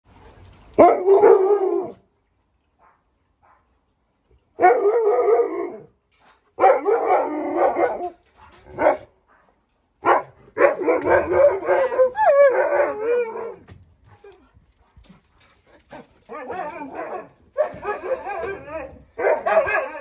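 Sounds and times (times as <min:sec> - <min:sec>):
dog howling and barking: 0:06.6 - 0:08.2, 0:10.6 - 0:13.6, 0:16.3 - 0:20.0.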